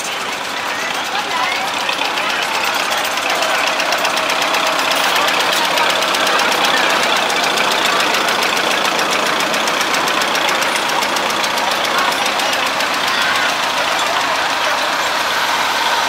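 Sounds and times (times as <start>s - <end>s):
crowd chatter: 0.0s - 16.0s
tractor engine running: 0.0s - 16.0s.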